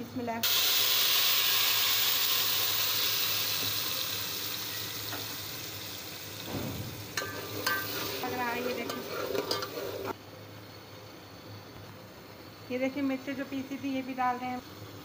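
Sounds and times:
paste sizzling in hot oil: 0.4s - 10.2s
spoon scraping a pot: 7.2s - 10.2s.

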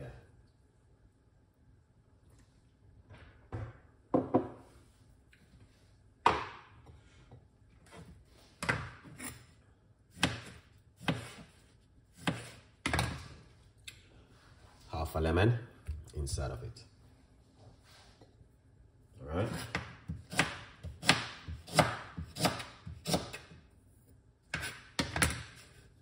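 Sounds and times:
knife chopping on wooden board: 10.1s - 11.6s, 12.2s - 13.2s, 19.5s - 23.6s.

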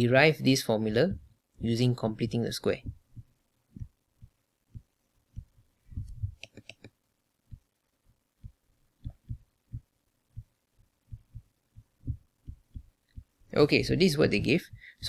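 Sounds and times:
stylus tapping on tablet screen: 2.8s - 7.7s, 8.4s - 10.5s, 11.2s - 13.4s.

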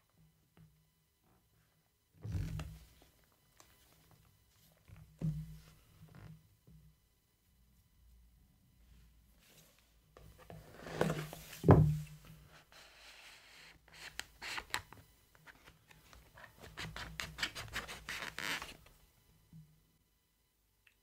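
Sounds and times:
cardboard box sliding open: 10.6s - 11.6s
thump: 11.6s - 12.1s.

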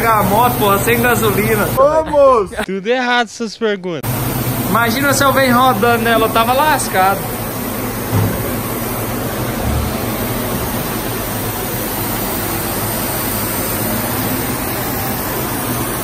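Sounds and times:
fan rushing: 0.0s - 2.7s, 4.0s - 16.0s
low thump: 8.1s - 8.7s.

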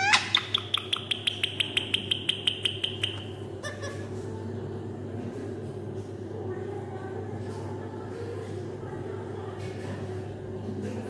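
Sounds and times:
parakeet whistling and chattering: 0.0s - 4.0s.

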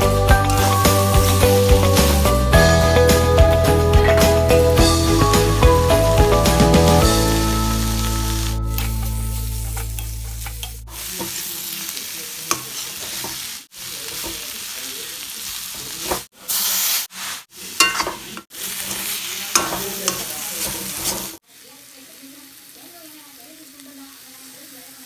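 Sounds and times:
vegetables sizzling in oil: 0.0s - 25.0s
spatula scraping a pan: 15.8s - 21.4s.

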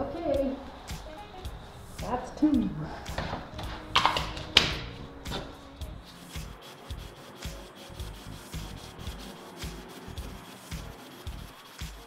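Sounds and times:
towel scrubbing concrete floor: 0.0s - 12.0s
sharp knocks: 0.6s - 7.8s.

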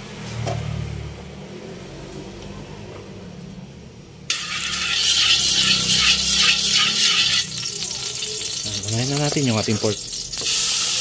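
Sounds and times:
oil sizzling in hot wok: 4.3s - 11.0s.

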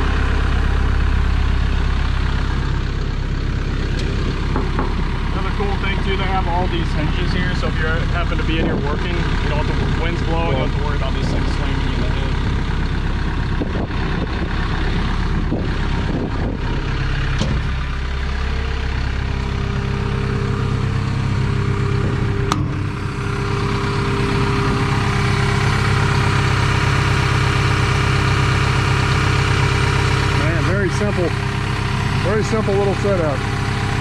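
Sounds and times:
excavator diesel engine idling: 0.0s - 34.0s.

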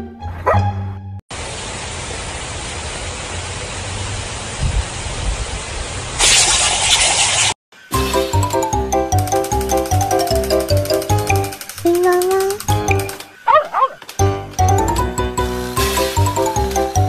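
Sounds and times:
sprinkler spraying water: 1.3s - 13.4s, 15.6s - 17.0s.

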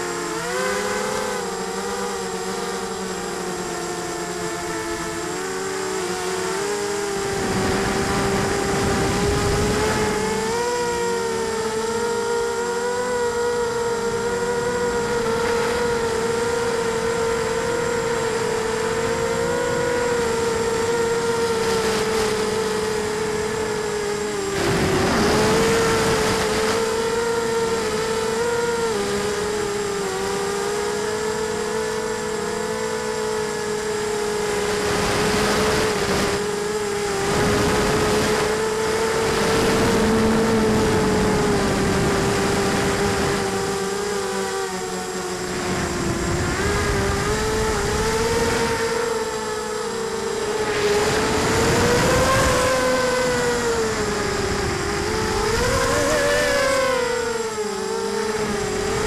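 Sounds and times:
quadcopter motors whining: 0.0s - 59.0s.

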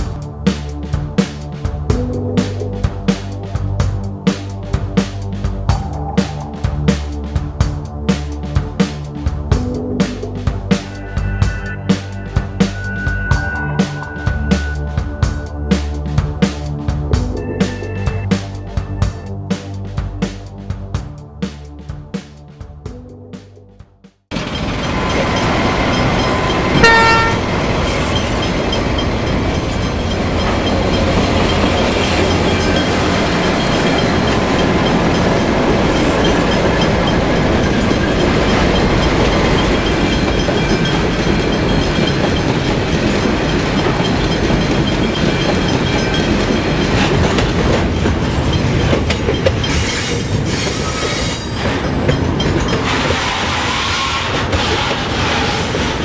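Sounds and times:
train wheels rumbling on rail: 0.0s - 22.8s, 24.3s - 56.0s
diesel locomotive horn blast: 26.6s - 27.8s.

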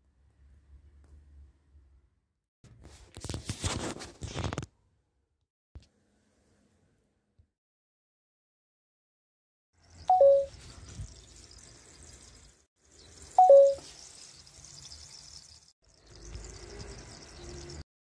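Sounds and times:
two-note electronic chime: 10.1s - 10.5s, 13.4s - 13.8s.

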